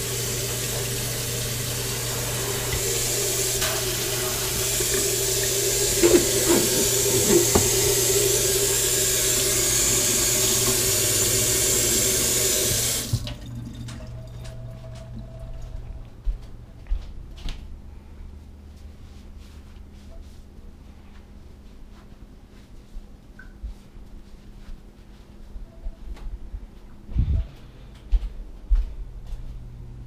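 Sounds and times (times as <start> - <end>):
tap running into steel sink: 2.7 - 8.6.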